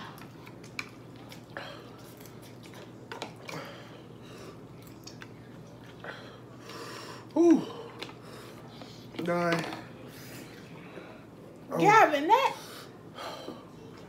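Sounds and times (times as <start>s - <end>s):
chewing noodles: 0.0s - 3.8s.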